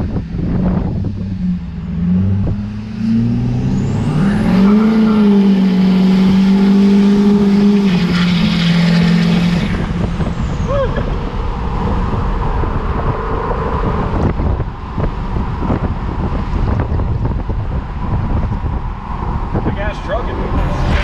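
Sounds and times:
pickup engine accelerating: 0.0s - 21.0s
turbo whine: 20.3s - 21.0s.

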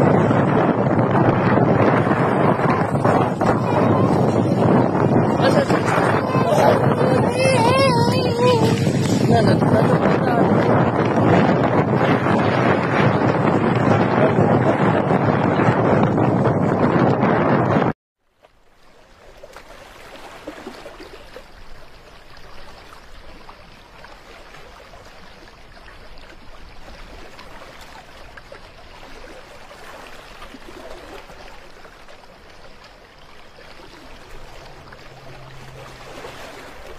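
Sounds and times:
floodwater rushing: 0.0s - 16.2s, 18.6s - 36.9s.

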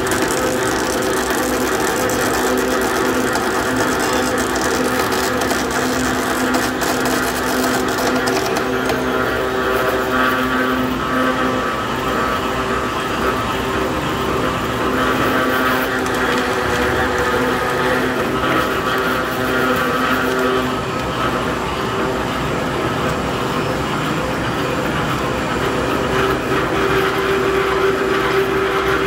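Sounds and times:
rapid clicking: 0.0s - 9.3s
tyre machine mechanical hum: 0.0s - 29.0s.

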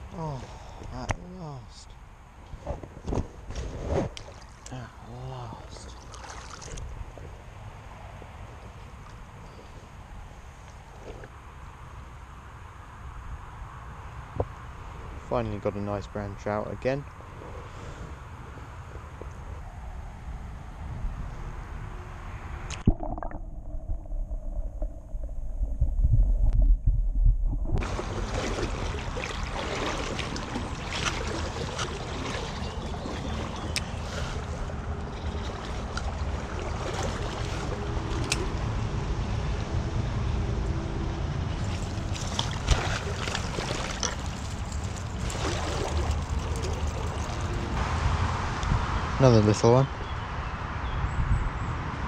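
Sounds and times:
low microphone rumble: 17.3s - 29.6s
river water rushing: 27.8s - 38.8s, 41.6s - 47.8s.

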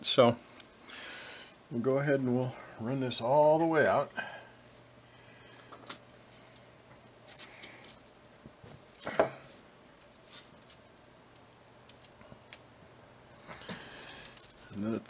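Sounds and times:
cable handling clicks and rustles: 5.6s - 12.7s, 13.4s - 15.0s.

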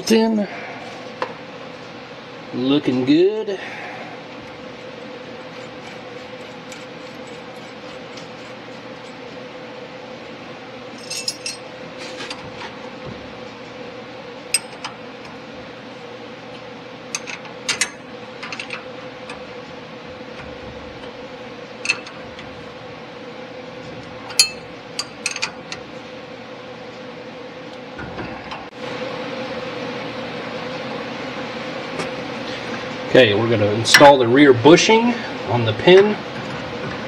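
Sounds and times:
steady hum: 0.0s - 37.0s.

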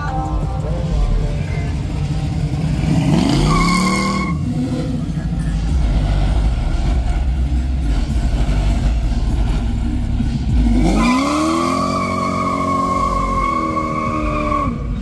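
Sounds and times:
car engine revving: 0.0s - 15.0s
tyres squealing: 3.1s - 4.6s.

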